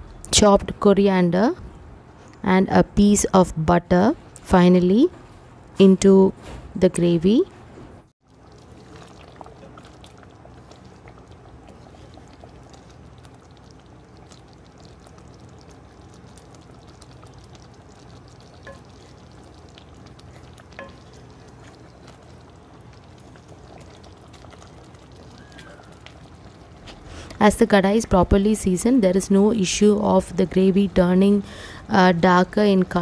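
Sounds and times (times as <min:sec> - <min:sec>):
gravy simmering and bubbling: 0:08.2 - 0:33.0.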